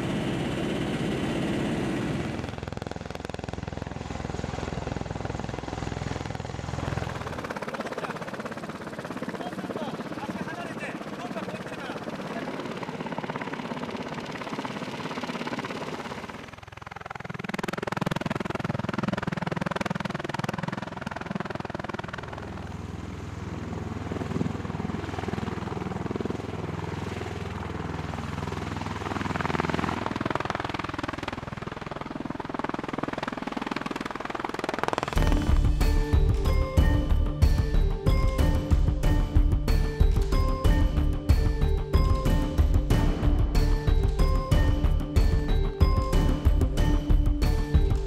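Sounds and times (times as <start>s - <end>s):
aircraft rotor and engine noise: 0.0s - 48.0s
music: 35.2s - 48.0s.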